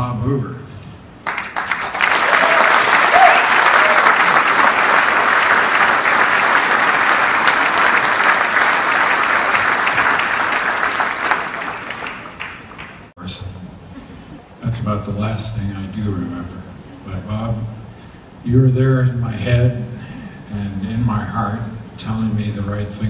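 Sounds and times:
large audience applauding: 1.2 - 13.1.

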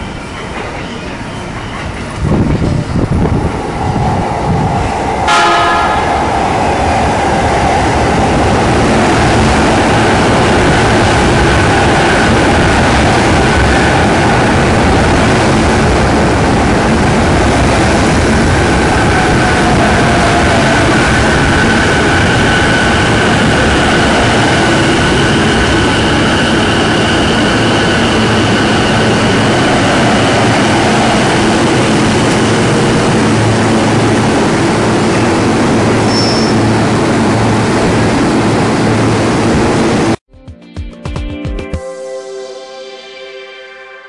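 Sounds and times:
train wheels rumbling on rail: 0.0 - 40.2.

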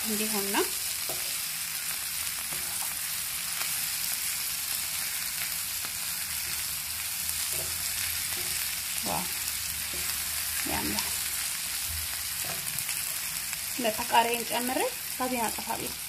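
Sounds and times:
vegetables sizzling in oil: 0.0 - 16.0
wooden spoon scraping: 7.4 - 11.2.

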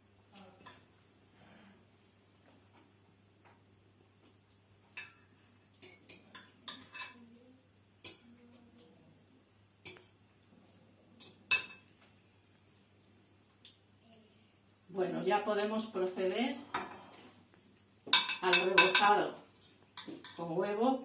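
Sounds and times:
metal utensil clinking on a plate: 5.0 - 7.2, 11.2 - 11.9, 18.1 - 19.2.

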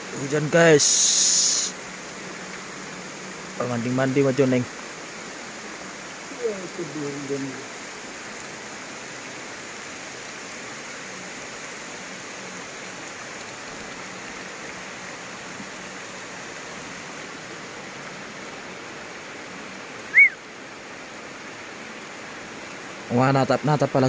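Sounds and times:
rain hissing on foliage: 0.0 - 24.0
high bird chirp: 20.1 - 20.4.

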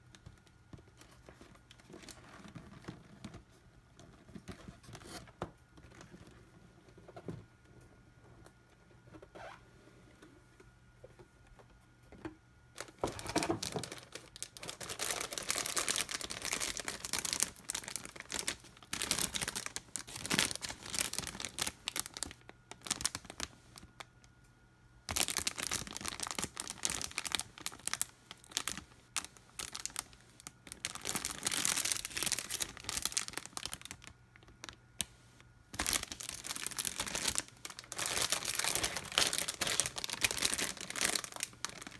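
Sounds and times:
plastic bags crinkling: 0.2 - 3.4, 12.8 - 24.0, 25.1 - 35.1, 35.7 - 41.9.

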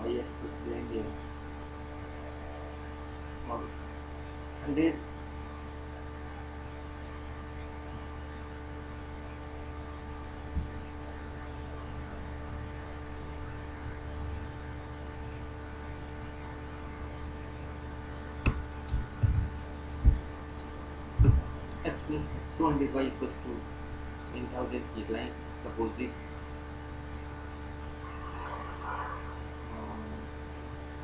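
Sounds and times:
electrical mains hum: 0.0 - 31.0
brief low thumps: 18.4 - 20.3, 21.2 - 21.6.

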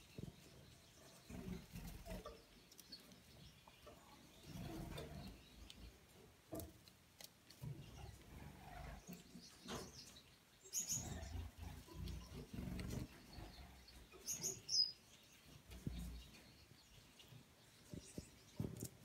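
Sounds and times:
finches chirping: 7.8 - 18.8.

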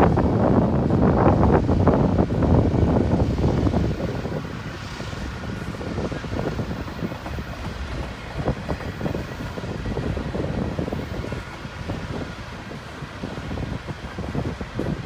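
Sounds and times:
train wheels rumbling on rails: 0.0 - 15.0
wheels clacking and knocking: 5.2 - 12.3.

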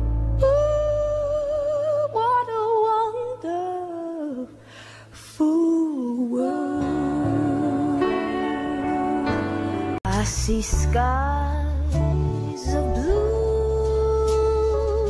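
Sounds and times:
soft musical accompaniment: 0.0 - 15.0
breath: 4.6 - 5.2.

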